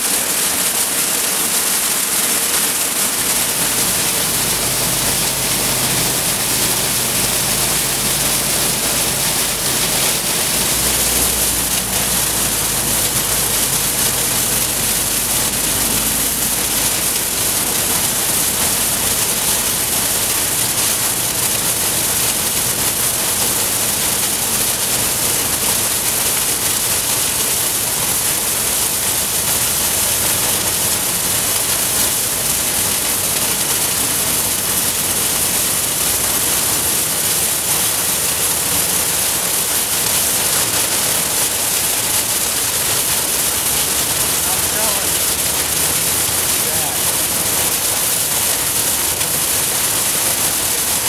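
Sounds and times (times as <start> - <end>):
shredding plant loud hiss: 43.6 - 50.8.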